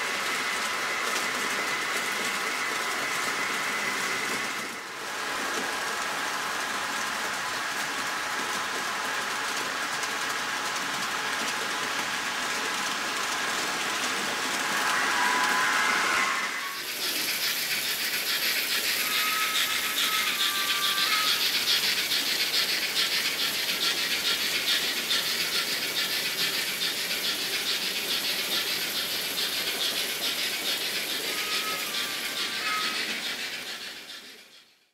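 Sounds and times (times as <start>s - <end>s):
model train clicking rattle: 5.4s - 34.9s
brief high squeal: 14.6s - 21.9s, 30.2s - 34.2s.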